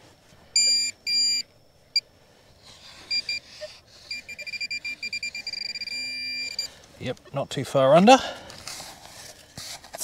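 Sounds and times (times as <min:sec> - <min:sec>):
metal detector beeps: 0:00.5 - 0:02.0, 0:03.1 - 0:07.5.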